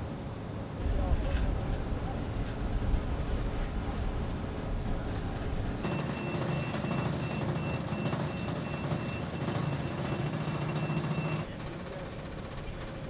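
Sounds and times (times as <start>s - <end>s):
quiet steady rumble: 0.0s - 5.9s
faint high pulsing beep: 5.8s - 11.5s.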